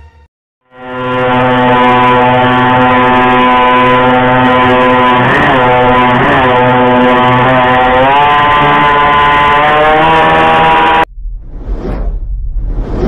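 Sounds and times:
boat engine droning: 0.6s - 11.1s.

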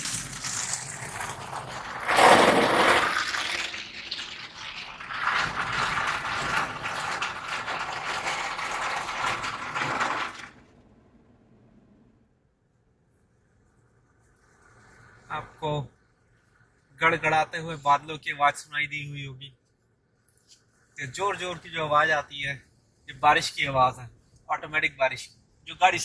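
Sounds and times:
car wash brushes scrubbing: 0.0s - 4.3s
water spraying on car: 0.0s - 10.6s, 13.1s - 15.4s.

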